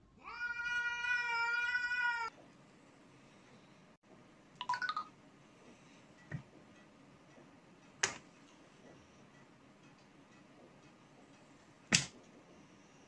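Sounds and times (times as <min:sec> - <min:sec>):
cat meowing: 0:00.2 - 0:02.3
cat yowling: 0:00.2 - 0:02.3.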